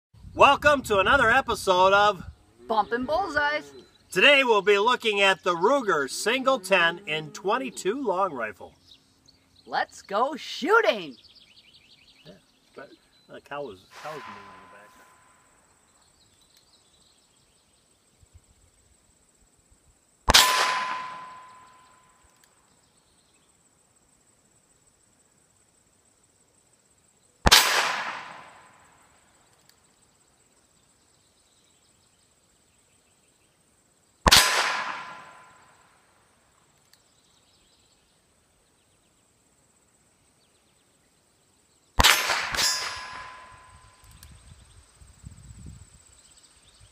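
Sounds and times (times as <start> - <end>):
ringing ping of steel target: 13.9 - 15.4, 20.3 - 22.2, 42.0 - 44.0
revolver shots: 20.3 - 21.9, 27.5 - 28.7, 34.3 - 35.6, 42.0 - 43.8.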